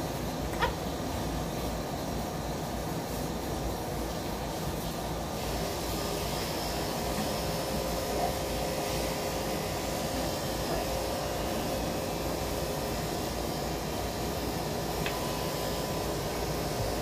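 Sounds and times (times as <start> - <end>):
electric clippers humming: 6.4 - 17.0.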